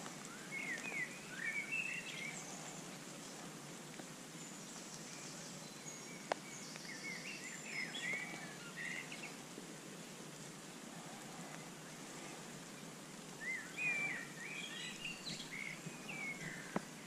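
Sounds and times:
steady hiss: 0:00.0 - 0:17.0
birds chirping and singing: 0:00.2 - 0:03.4, 0:04.4 - 0:09.4, 0:13.4 - 0:17.0.

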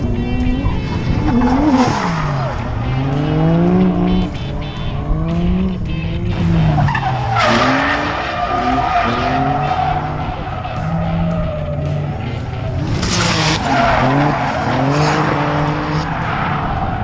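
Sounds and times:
car engines revving: 0:00.0 - 0:17.0
tyre squeal: 0:06.6 - 0:11.7.

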